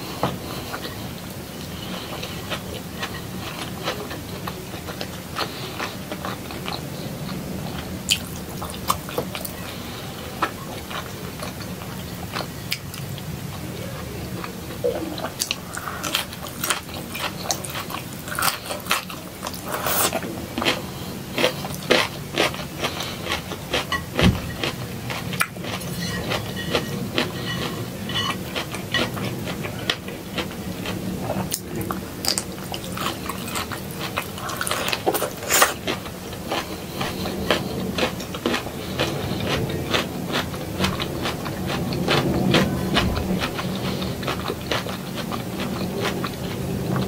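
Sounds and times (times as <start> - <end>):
person chewing and biting: 0.3 - 47.0.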